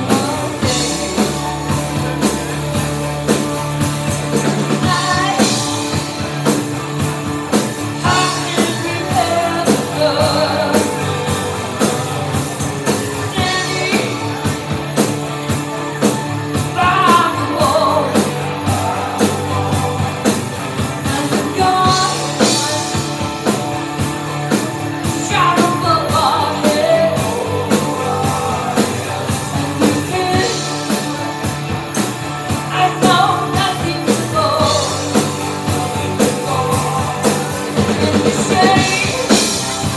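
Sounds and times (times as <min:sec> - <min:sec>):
woman singing: 0:00.0 - 0:02.0, 0:04.3 - 0:06.2, 0:08.0 - 0:14.5, 0:16.7 - 0:23.2, 0:25.1 - 0:31.0, 0:32.7 - 0:39.9
drum kit beat: 0:00.0 - 0:39.9
electric guitar: 0:00.0 - 0:39.9.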